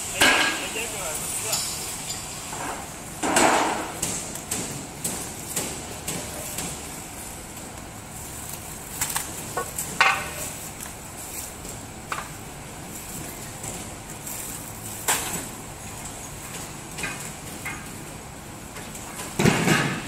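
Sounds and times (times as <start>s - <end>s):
plastic wrapping film rustling: 6.2s - 17.4s.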